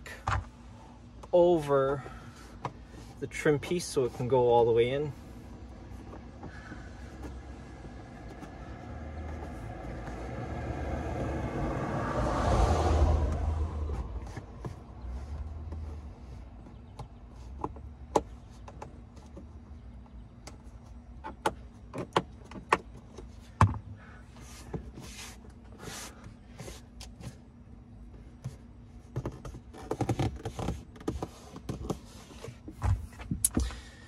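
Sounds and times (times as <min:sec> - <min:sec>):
brushing rubs: 0:24.3 - 0:27.4, 0:28.4 - 0:33.2.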